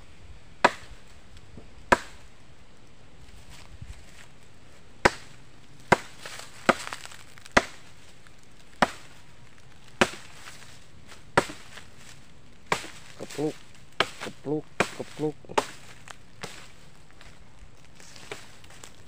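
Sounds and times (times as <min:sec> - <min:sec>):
machete chopping woody stems: 0:00.6 - 0:00.9, 0:01.9 - 0:02.2, 0:05.0 - 0:07.9, 0:08.8 - 0:09.2, 0:09.9 - 0:10.6, 0:11.3 - 0:11.8, 0:12.7 - 0:16.7, 0:18.1 - 0:18.9.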